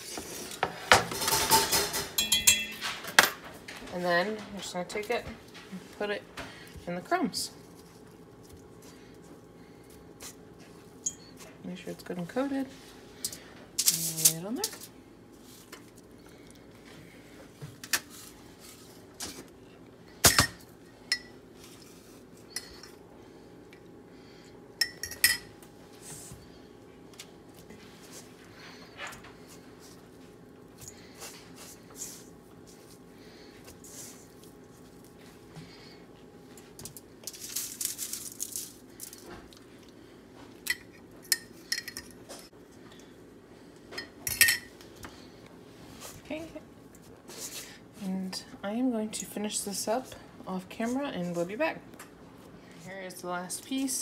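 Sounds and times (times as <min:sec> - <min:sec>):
clinks on steel mixing bowl: 0:01.4 - 0:02.8
metal spoon clinking on ceramic cup: 0:02.2 - 0:02.8
dry rustling of crumbs: 0:31.0 - 0:40.2.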